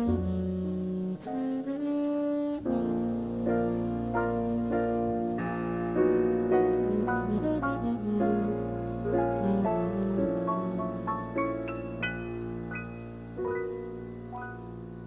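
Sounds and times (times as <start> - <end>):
piano accompaniment: 0.0 - 15.0
saxophone melody: 0.0 - 15.0.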